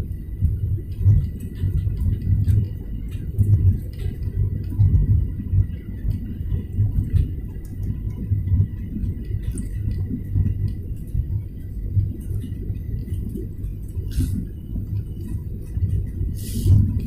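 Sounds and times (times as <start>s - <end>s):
jet engine rumble in cabin: 0.0s - 17.0s
rushing air: 16.3s - 17.0s.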